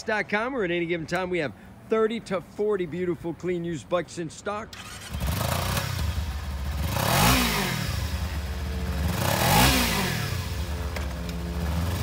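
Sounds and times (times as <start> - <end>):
motorcycle engine idling and revving: 4.7 - 12.0.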